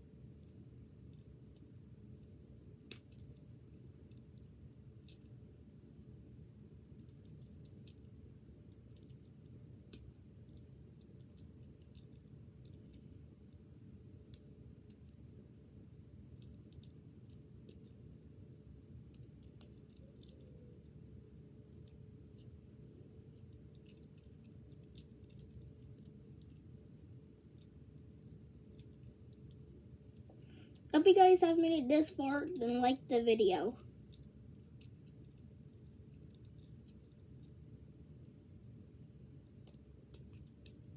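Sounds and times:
low steady hum: 0:00.0 - 0:40.9
puzzle cube plastic clicks: 0:31.2 - 0:32.9.

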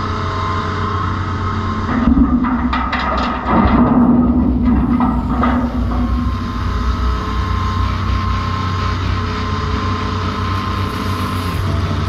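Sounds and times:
diesel engines running: 0:00.0 - 0:12.0
thin steady hydraulic whine: 0:00.0 - 0:12.0
soil clattering into steel trailer: 0:01.9 - 0:06.6.

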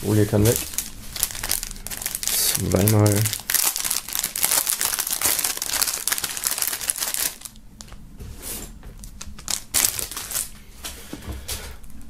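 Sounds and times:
plastic film crinkling: 0:00.1 - 0:08.0, 0:09.0 - 0:10.6.

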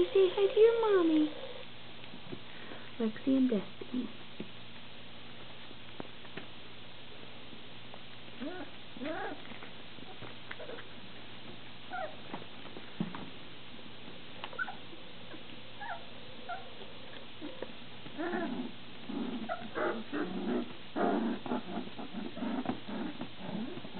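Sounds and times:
puppies whimpering: 0:14.5 - 0:16.8, 0:19.3 - 0:20.3.

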